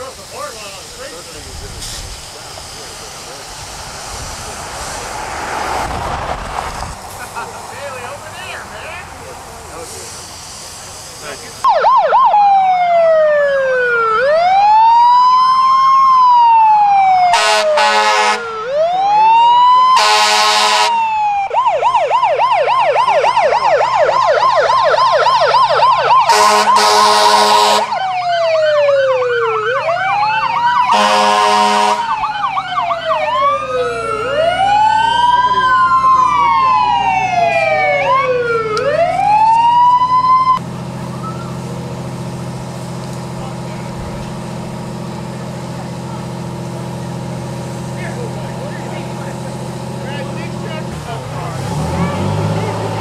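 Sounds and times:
fire engine siren wailing: 11.6s - 53.0s
air horn blasts: 17.3s - 18.6s, 20.0s - 21.1s, 26.2s - 28.0s, 30.9s - 32.2s.

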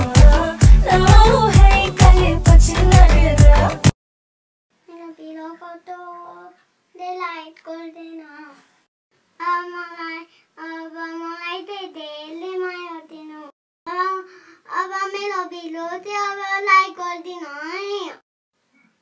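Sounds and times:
child singing: 0.0s - 3.9s, 9.4s - 18.2s.

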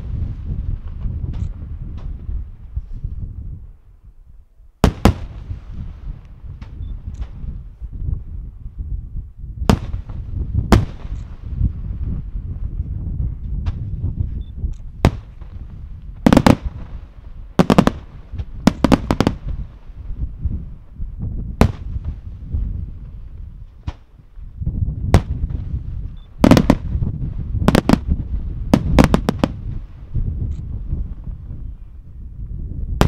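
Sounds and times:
firework shells bursting: 4.8s - 7.4s, 14.8s - 19.7s, 26.3s - 27.0s, 27.7s - 29.9s.

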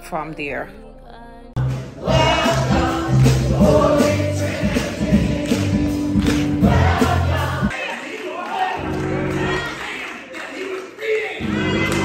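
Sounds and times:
gospel choir singing: 1.5s - 12.0s
steady percussion beat: 1.6s - 7.7s.

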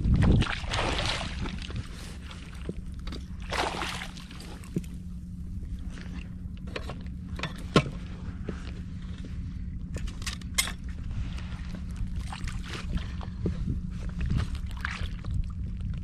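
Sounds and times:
low rumble of wind and water: 0.0s - 16.0s
knocks and clicks of fishing gear: 6.6s - 8.0s.

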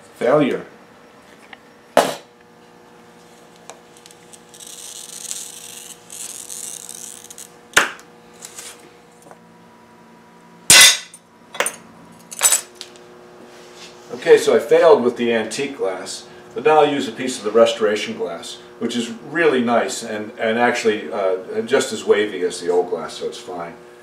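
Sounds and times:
glass cutter scoring glass: 3.6s - 8.8s
glass cracking and snapping: 3.9s - 7.9s.

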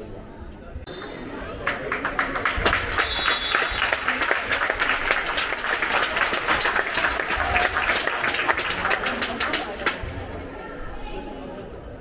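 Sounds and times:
crowd applauding in hall: 1.0s - 10.0s.

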